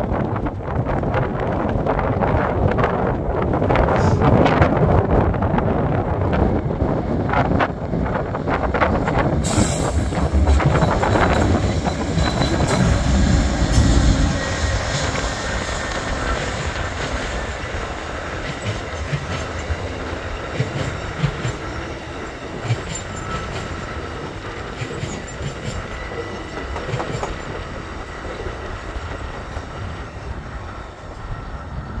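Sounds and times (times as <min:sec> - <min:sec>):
train cars rumbling past: 0:00.0 - 0:32.0
wheels clacking over rail joints: 0:07.6 - 0:30.4.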